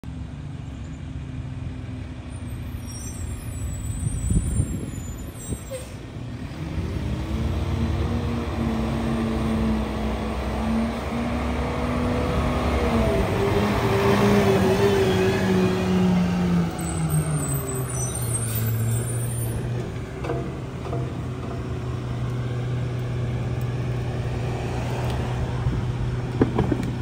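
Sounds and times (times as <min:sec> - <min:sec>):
garbage truck engine humming: 0:06.2 - 0:27.0.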